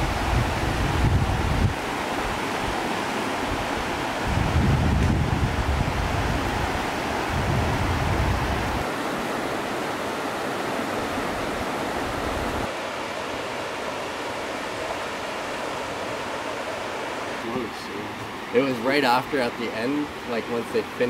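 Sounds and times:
wind rumble on microphone: 0.0 - 2.8, 3.4 - 8.9, 11.1 - 12.7
whitewater rushing: 0.0 - 21.0.

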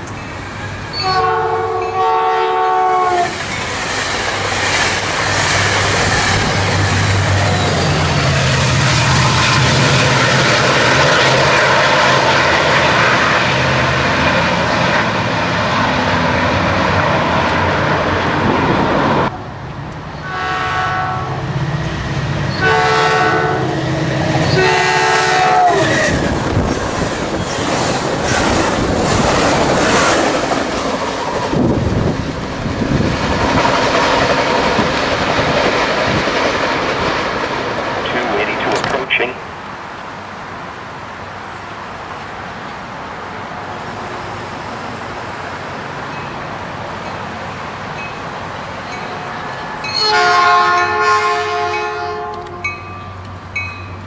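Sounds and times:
train rumble and wheel noise: 0.0 - 54.0
locomotive horn blasts: 1.0 - 3.3, 20.2 - 21.4, 22.5 - 23.8, 24.4 - 25.9, 49.9 - 52.8
locomotive engine: 3.3 - 39.6.

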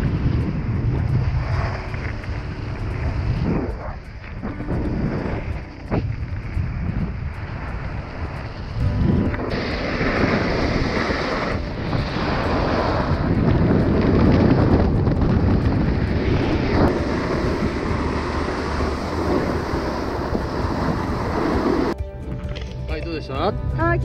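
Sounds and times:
skis scraping snow: 0.0 - 22.0
wind on microphone: 0.0 - 22.0.

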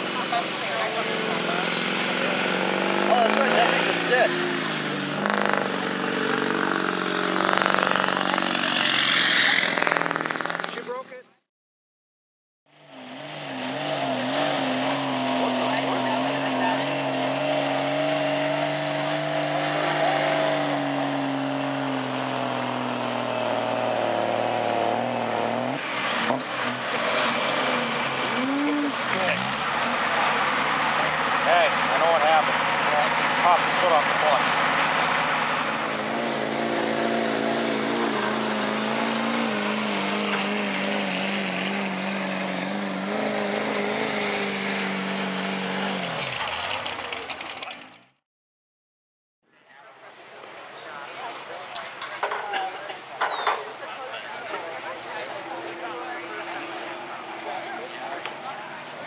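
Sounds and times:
diesel engine at high revs: 0.0 - 11.1, 12.7 - 48.2, 53.3 - 59.0.

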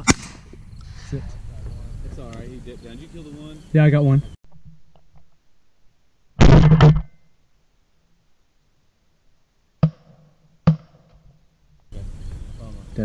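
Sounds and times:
shotgun firing: 0.0 - 0.5.

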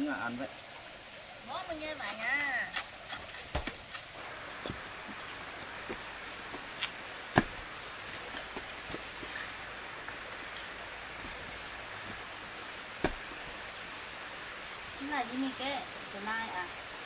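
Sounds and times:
high insect drone: 0.0 - 17.0
concrete blocks and stones knocking: 5.9 - 7.7, 13.0 - 13.3.

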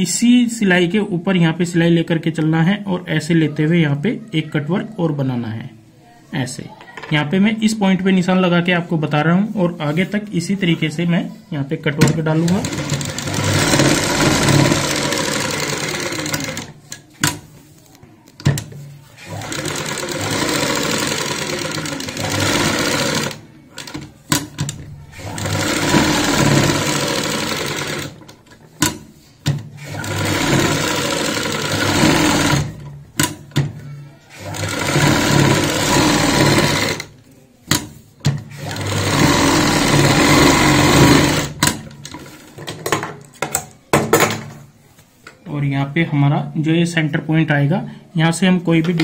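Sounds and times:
sewing machine stitching: 12.2 - 17.4, 19.2 - 28.3, 29.8 - 33.4, 34.3 - 37.1, 38.4 - 42.4.

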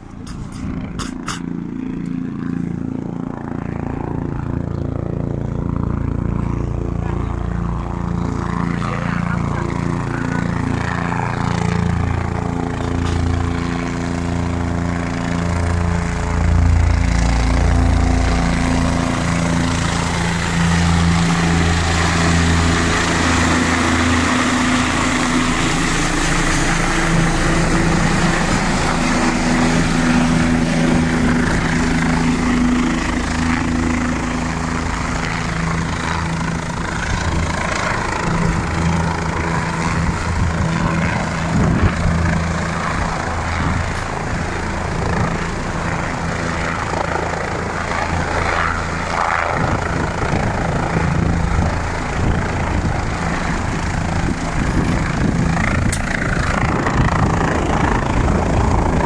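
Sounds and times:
helicopter rotor beat: 0.0 - 59.0
turbine rushing noise: 7.1 - 59.0.

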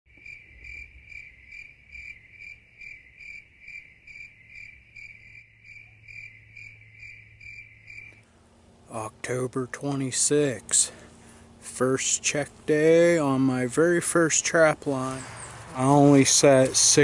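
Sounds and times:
cricket chirping: 0.1 - 8.3.

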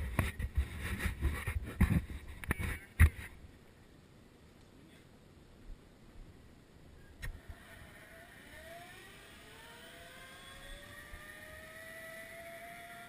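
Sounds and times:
zip line pulleys whining: 7.2 - 13.0.

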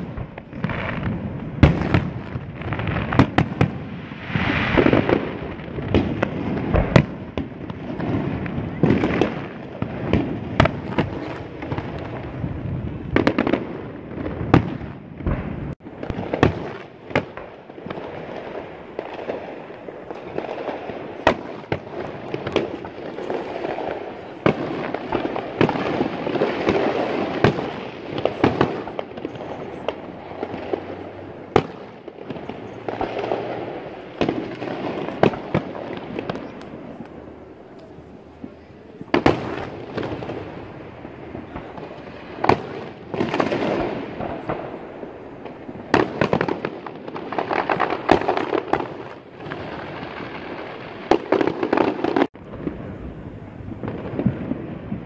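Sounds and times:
fireworks bursting: 0.0 - 55.0
crowd noise: 17.8 - 46.2.

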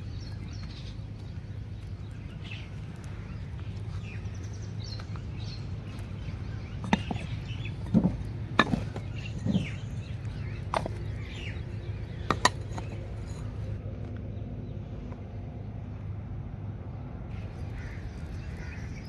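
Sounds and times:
steady low hum: 0.0 - 19.0
clay lids clinking on pots: 12.2 - 13.6.

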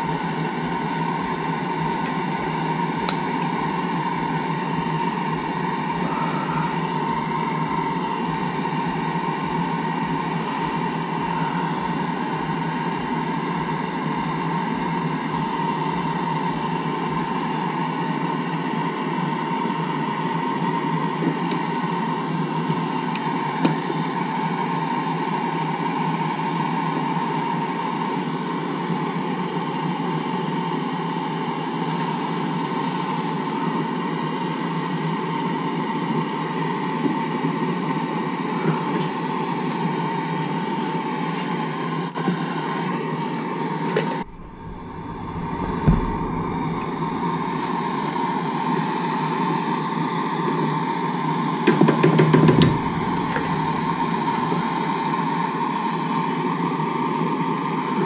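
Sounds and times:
shop vacuum running: 0.0 - 58.0.

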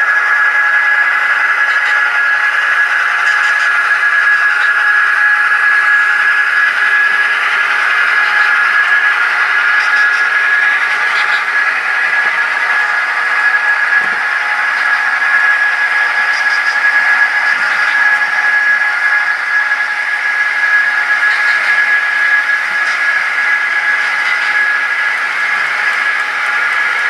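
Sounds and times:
constant high whine: 0.0 - 27.0
model train running: 0.0 - 27.0.

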